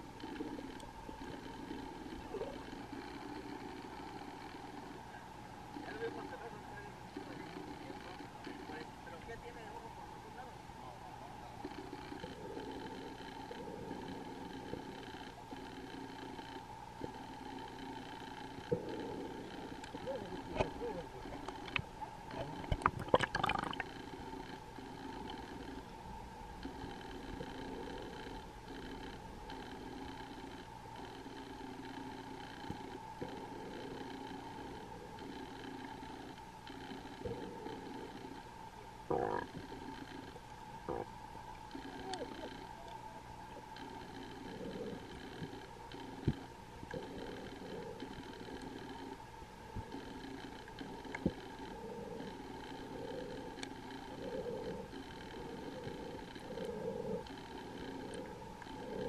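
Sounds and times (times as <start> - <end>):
steady hum: 0.0 - 59.0
muffled underwater noise: 0.3 - 59.0
underwater water rumble: 18.6 - 24.3.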